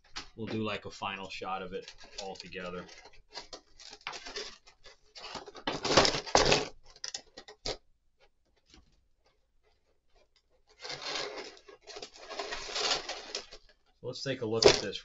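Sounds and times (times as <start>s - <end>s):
plastic blister tray crinkling: 1.8s - 7.8s, 9.8s - 13.8s.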